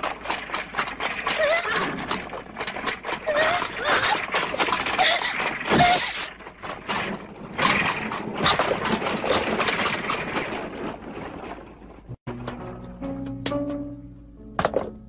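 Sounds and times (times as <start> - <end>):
clatter of hooves and wheels: 0.0 - 12.8.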